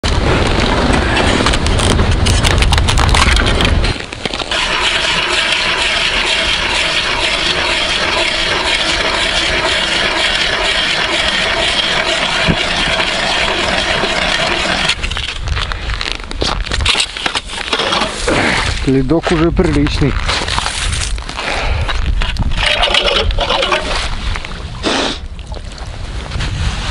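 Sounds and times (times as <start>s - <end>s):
ice auger grinding through ice: 0.6s - 15.6s, 21.8s - 24.2s.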